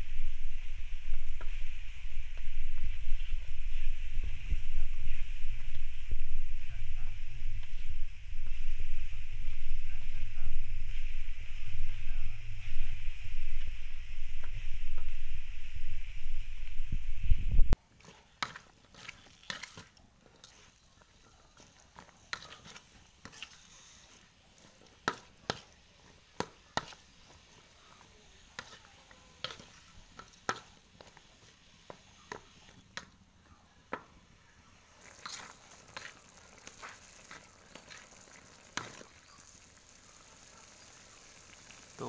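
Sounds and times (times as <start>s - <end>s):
faint sizzle: 0.0s - 42.0s
spatula scraping a wok: 18.0s - 33.1s, 34.8s - 41.4s.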